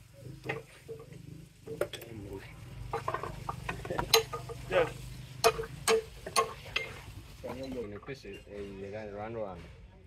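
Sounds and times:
metal clinks and knocks: 0:02.9 - 0:04.7, 0:05.4 - 0:08.6
hammer striking metal: 0:05.4 - 0:06.9.

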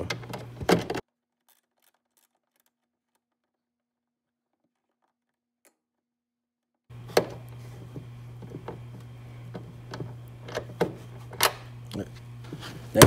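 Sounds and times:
steady low hum: 0:00.0 - 0:01.0, 0:06.9 - 0:13.0.

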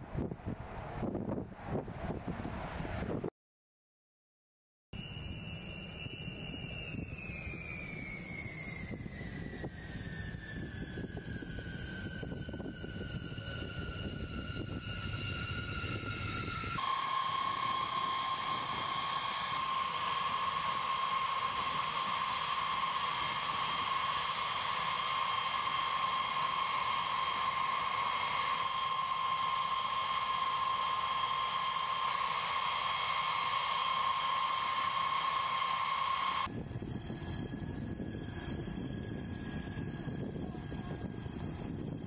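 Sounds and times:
jet engine whine: 0:05.0 - 0:42.0
low engine rumble: 0:36.4 - 0:42.0.

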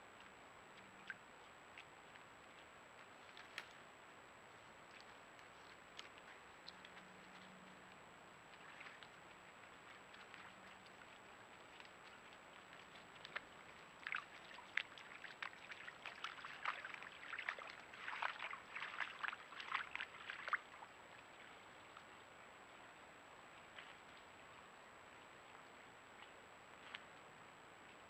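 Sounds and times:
hooves splashing in a puddle: 0:00.0 - 0:28.0.

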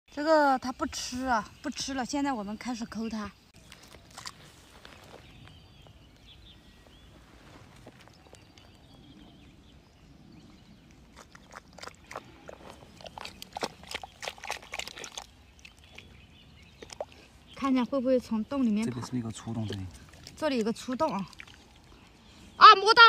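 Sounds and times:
fingers squelching in wet mud: 0:03.6 - 0:05.4, 0:10.8 - 0:17.6, 0:18.8 - 0:22.2.

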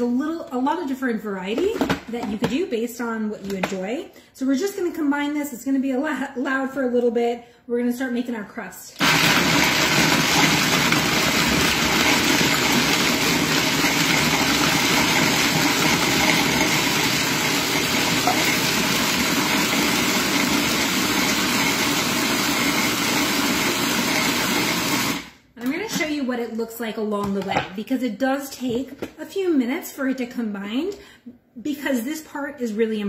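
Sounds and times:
food processor grinding nuts: 0:09.0 - 0:25.4.

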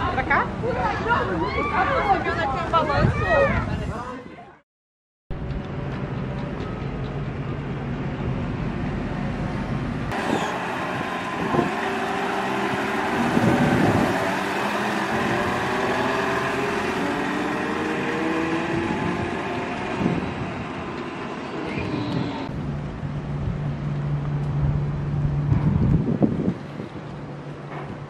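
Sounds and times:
excavator diesel engine driving past: 0:05.6 - 0:25.5.

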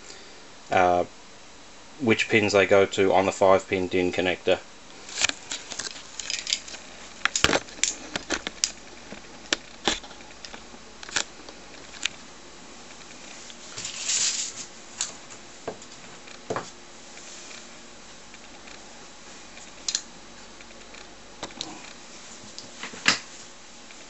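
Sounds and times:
short rustle: 0:12.9 - 0:16.3.

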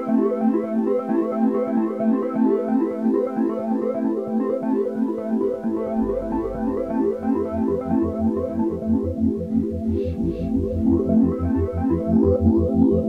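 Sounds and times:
synthesizer keyboard music: 0:04.8 - 0:13.0.

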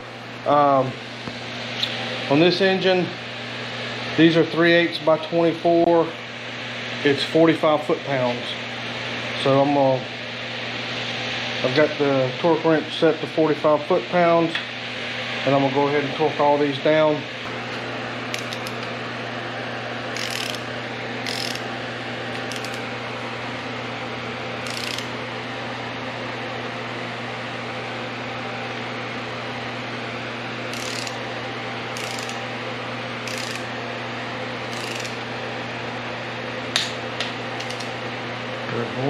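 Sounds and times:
steady hum: 0:00.0 - 0:39.0
torque wrench clicking: 0:18.3 - 0:18.9, 0:20.1 - 0:21.7, 0:22.4 - 0:22.8, 0:24.6 - 0:25.1, 0:30.7 - 0:31.2, 0:31.9 - 0:32.4, 0:33.2 - 0:33.7, 0:34.7 - 0:35.2, 0:37.6 - 0:37.9.

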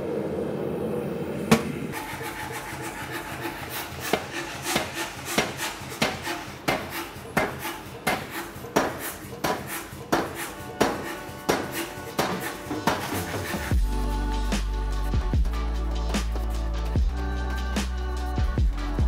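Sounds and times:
power hammer striking hot steel: 0:03.2 - 0:13.4.

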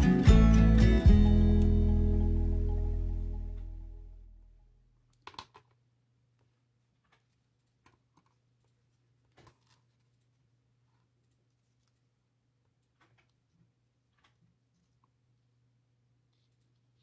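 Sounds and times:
background music: 0:00.0 - 0:04.4.

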